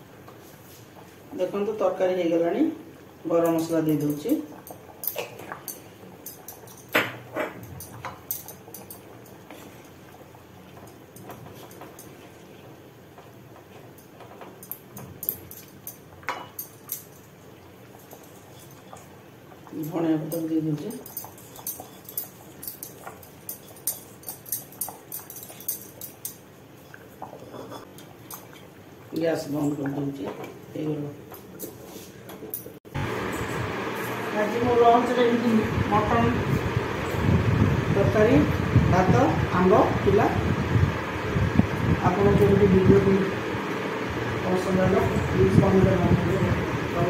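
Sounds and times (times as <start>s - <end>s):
curry bubbling and popping: 4.0s - 32.8s.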